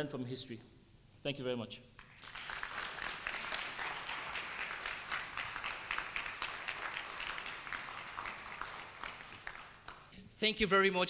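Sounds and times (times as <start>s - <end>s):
audience applauding: 2.0s - 10.1s.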